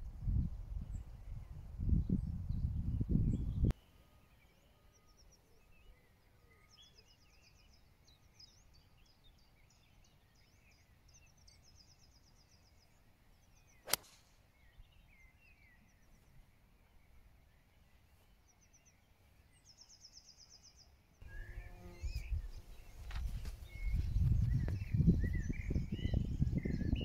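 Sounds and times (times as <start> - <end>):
wind rumble on microphone: 0.0 - 3.7, 21.2 - 27.0
birds singing: 0.2 - 27.0
golf club striking ball: 13.9 - 14.2.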